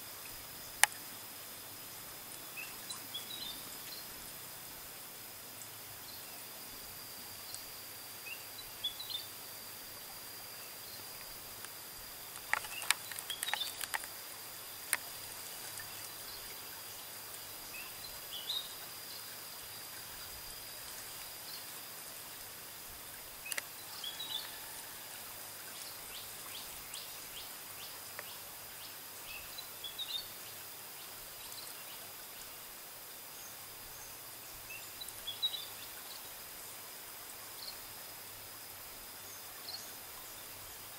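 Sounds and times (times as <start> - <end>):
steady hiss: 0.0 - 40.9
sharp clicks: 11.6 - 14.1
bird chirping: 12.4 - 14.0.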